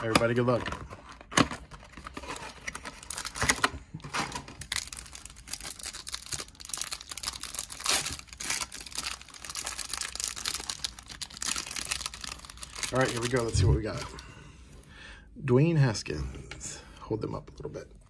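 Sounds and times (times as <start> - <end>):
plastic wrapper crinkling and tearing: 0.0 - 14.2.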